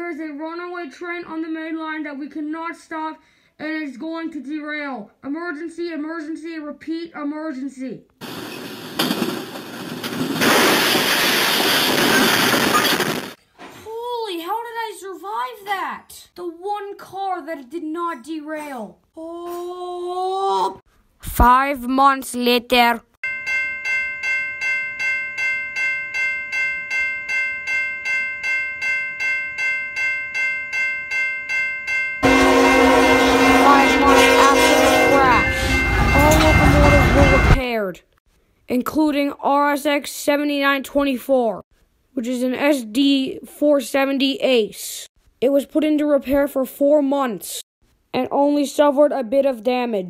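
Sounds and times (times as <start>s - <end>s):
railroad crossing bell ringing: 23.2s - 37.6s
train horn: 32.2s - 37.6s.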